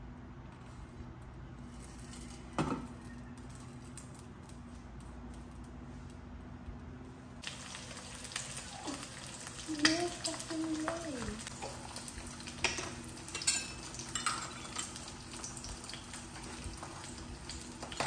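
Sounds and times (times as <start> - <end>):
egg sizzling in hot oil: 7.4 - 18.0.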